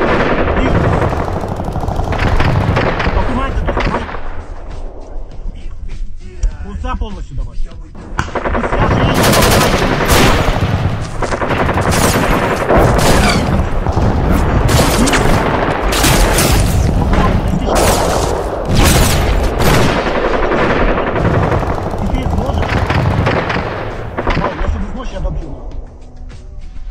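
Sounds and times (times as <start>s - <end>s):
automatic gunfire bursts: 8.3s - 13.5s.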